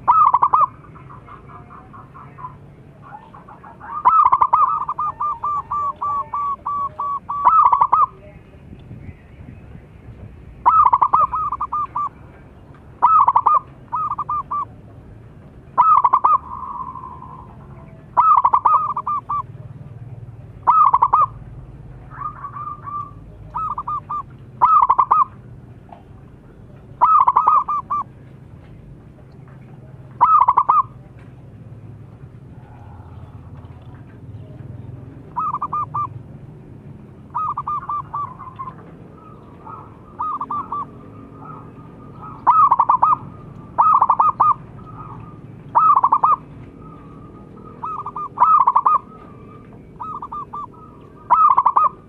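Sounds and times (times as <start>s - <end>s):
dove cooing: 0.0s - 8.4s, 10.6s - 12.2s, 13.0s - 14.8s, 15.8s - 25.4s, 26.9s - 28.2s, 30.2s - 31.1s, 32.6s - 52.0s.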